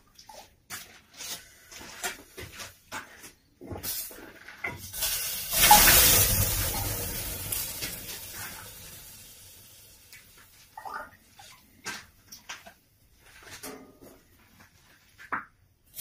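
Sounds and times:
water hissing on hot stones: 0:04.8 - 0:10.8.

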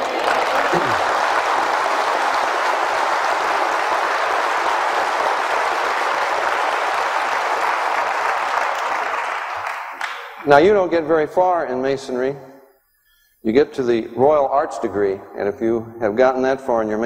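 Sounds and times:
large audience applauding: 0:00.0 - 0:10.4.

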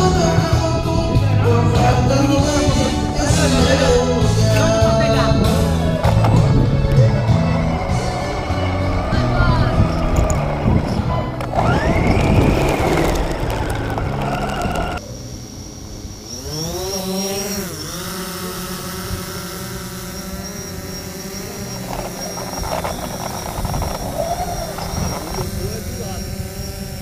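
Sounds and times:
music: 0:00.0 - 0:15.0
drone propellers whining: 0:00.0 - 0:27.0.

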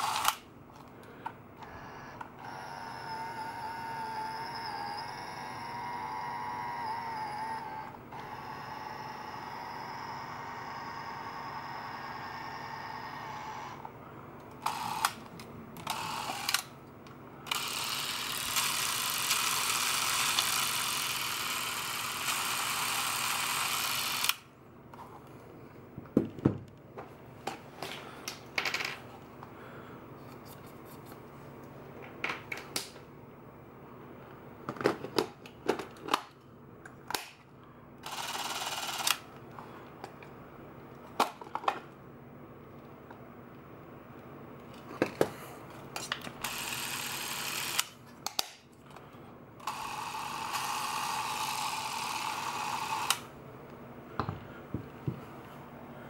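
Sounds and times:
steady camera running noise: 0:00.0 - 0:00.5, 0:01.6 - 0:16.8, 0:17.4 - 0:24.5, 0:38.0 - 0:39.4, 0:45.9 - 0:48.4, 0:49.6 - 0:53.4.

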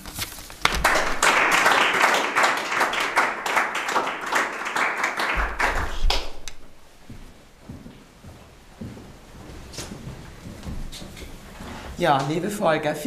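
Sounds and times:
audience applauding: 0:00.6 - 0:06.7.

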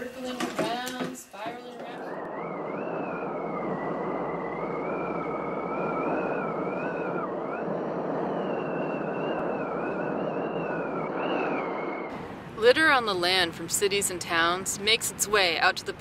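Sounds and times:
whale song: 0:01.9 - 0:12.1
rushing underwater noise: 0:02.0 - 0:12.4.

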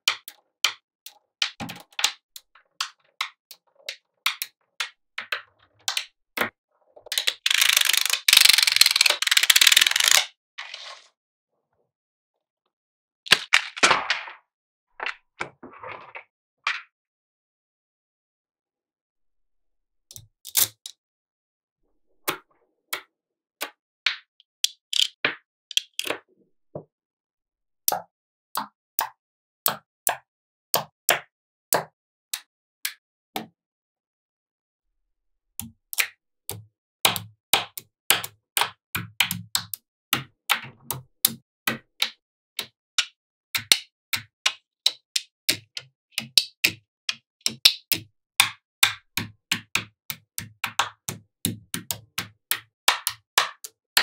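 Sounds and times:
magnetic balls clicking together: 0:07.1 - 0:10.3.

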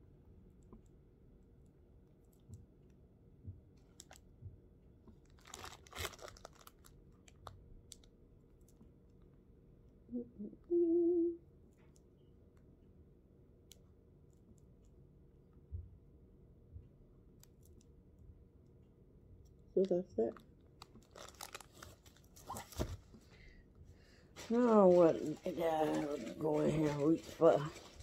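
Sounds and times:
crinkly rustle: 0:05.2 - 0:08.0, 0:20.8 - 0:23.3, 0:24.3 - 0:28.0
woman humming mm-hmm: 0:10.1 - 0:11.4.

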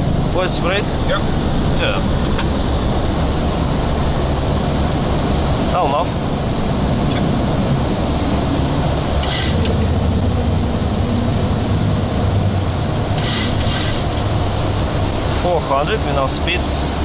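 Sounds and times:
cockpit airflow and engine noise: 0:00.0 - 0:17.0
short hisses: 0:13.2 - 0:14.1.

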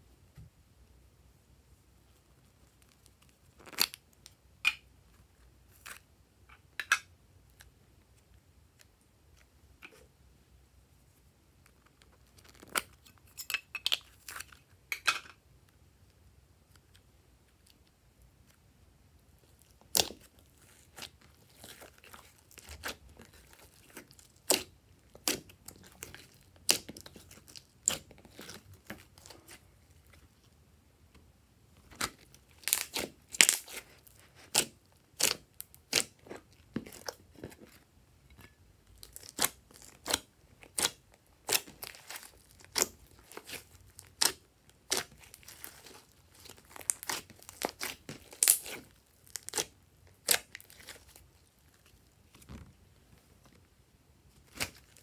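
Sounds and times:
hands squishing slime: 0:19.4 - 0:30.5, 0:31.8 - 0:53.1, 0:54.3 - 0:55.0.

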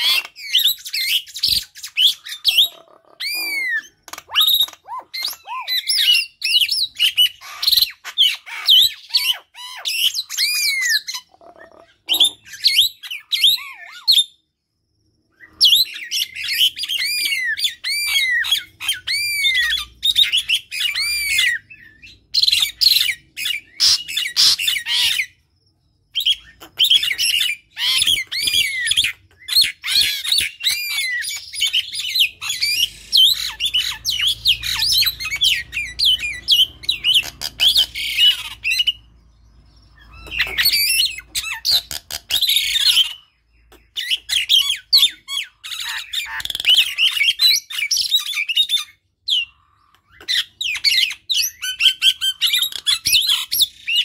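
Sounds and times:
birds squawking and chattering: 0:00.0 - 0:14.6, 0:15.3 - 0:54.0.

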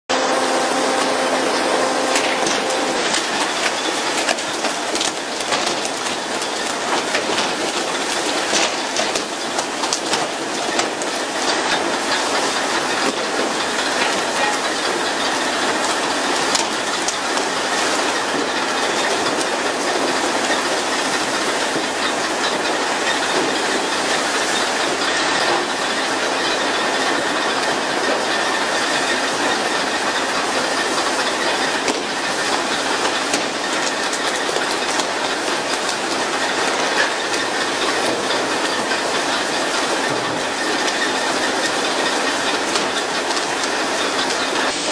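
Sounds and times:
hiss of water spraying: 0:44.5 - 0:44.9.

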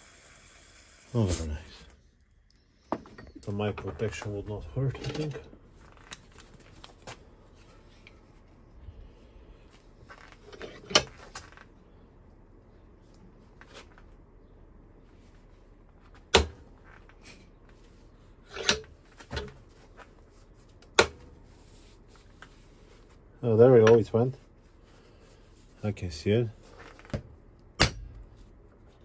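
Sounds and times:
sharp metal knocks: 0:27.8 - 0:28.3.

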